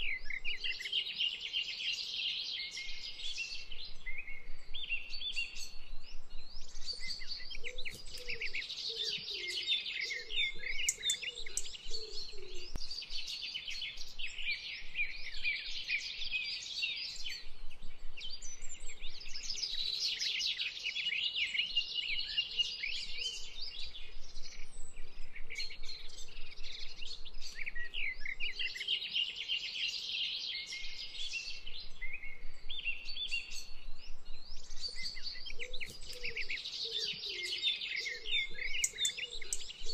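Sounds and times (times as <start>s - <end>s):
small birds chirping: 0.0s - 39.9s
lower bird calls: 2.6s - 17.5s, 30.6s - 39.9s.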